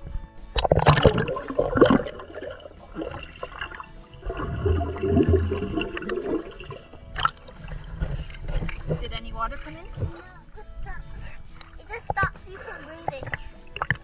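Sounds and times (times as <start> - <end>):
water churning and gurgling: 0.0 - 14.0
muffled underwater splashing and bubbling: 0.5 - 14.0
loud water splash: 0.6 - 9.0.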